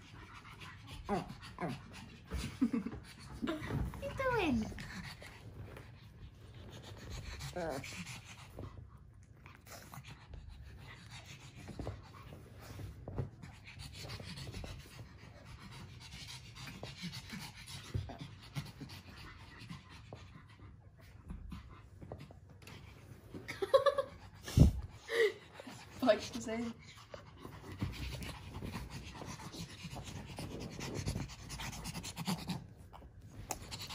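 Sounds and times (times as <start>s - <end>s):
dogs panting: 0.0s - 33.9s.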